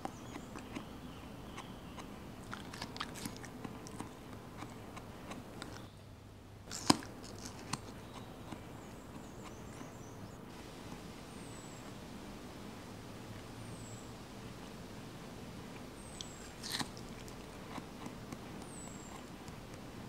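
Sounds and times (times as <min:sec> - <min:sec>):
monkey chewing watermelon: 0:00.0 - 0:06.0, 0:06.6 - 0:10.0, 0:15.5 - 0:20.0.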